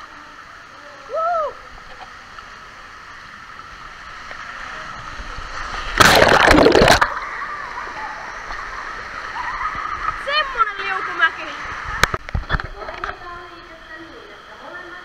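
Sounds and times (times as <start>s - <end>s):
indoor pool water noise: 0.0s - 15.0s
underwater splashing and churning: 1.8s - 12.7s.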